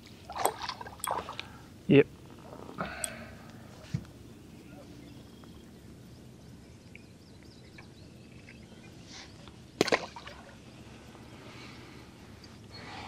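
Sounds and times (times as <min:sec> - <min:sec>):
faint water and wind: 0:00.0 - 0:13.0
fish splashing into water: 0:09.8 - 0:10.5.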